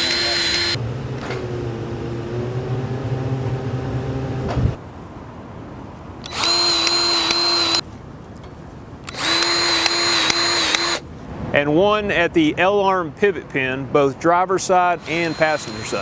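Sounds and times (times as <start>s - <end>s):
grease gun motor running: 0.0s - 0.8s, 6.2s - 7.8s, 9.1s - 11.0s, 15.0s - 16.0s.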